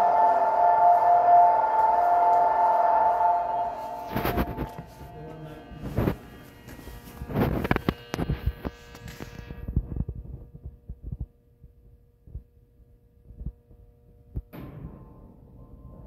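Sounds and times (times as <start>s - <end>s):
electric train humming: 0.0s - 9.6s.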